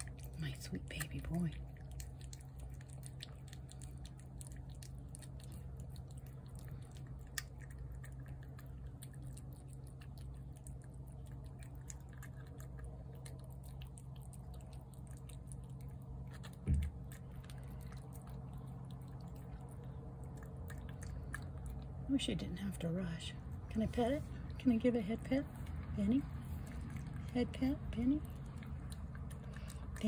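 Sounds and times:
cat chewing wet food: 0.0s - 30.0s
steady low hum: 0.0s - 30.0s
dull thump: 16.6s - 17.0s.

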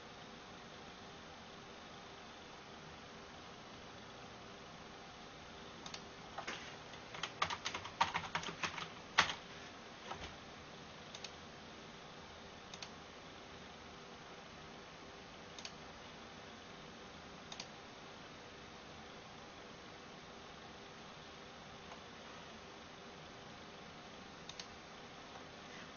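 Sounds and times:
keyboard typing: 5.9s - 9.5s.

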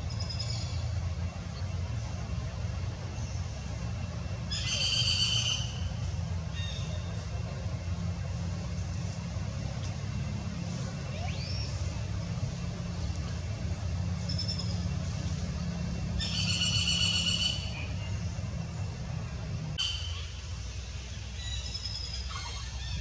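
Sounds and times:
steady low rumble: 0.0s - 23.0s
high-pitched animal calls: 22.2s - 23.0s.

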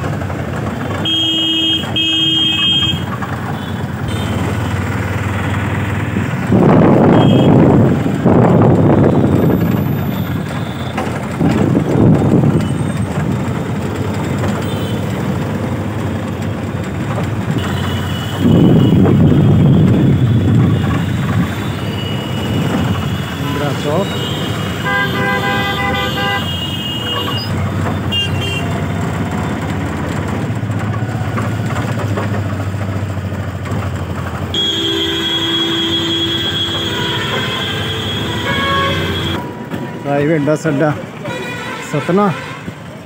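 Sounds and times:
auto-rickshaw engine and road noise: 0.0s - 43.0s
vehicle horn honking: 1.0s - 4.8s, 6.9s - 7.8s, 14.6s - 15.1s, 17.5s - 28.8s, 34.5s - 42.8s.

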